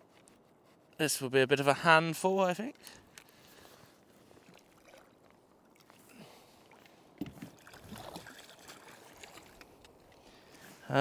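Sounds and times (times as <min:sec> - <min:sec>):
water sloshing against kayak: 0:02.8 - 0:10.9.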